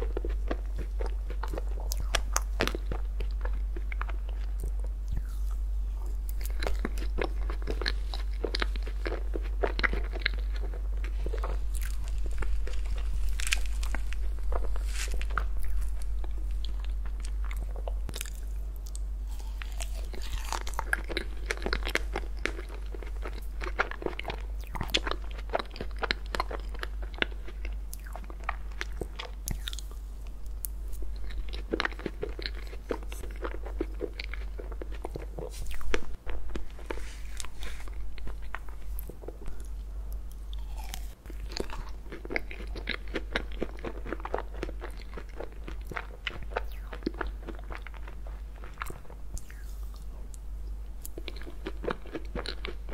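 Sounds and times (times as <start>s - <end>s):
chewing and mouth smacks: 0.0s - 30.0s, 30.6s - 50.4s, 51.0s - 52.9s.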